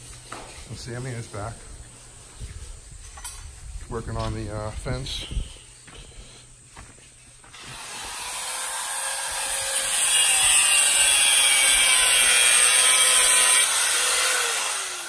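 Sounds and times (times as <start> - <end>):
angle grinder cutting steel: 7.6 - 15.0.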